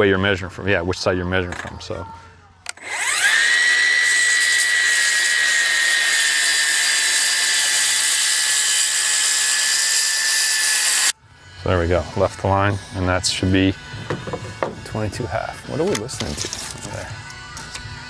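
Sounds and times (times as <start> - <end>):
circular saw cutting wood: 2.8 - 13.9.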